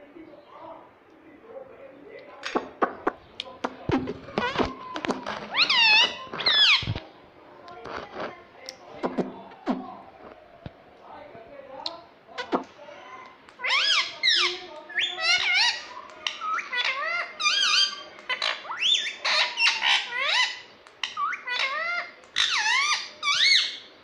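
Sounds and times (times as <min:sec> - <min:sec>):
parakeet squeaky calls: 0:05.3 - 0:07.0, 0:13.6 - 0:23.9.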